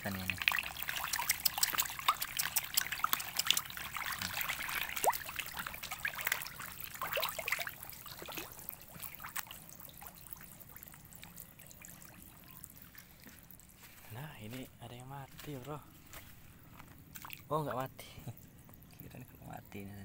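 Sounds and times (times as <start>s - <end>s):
fish thrashing and splashing: 0.2s - 14.1s, 16.9s - 17.5s.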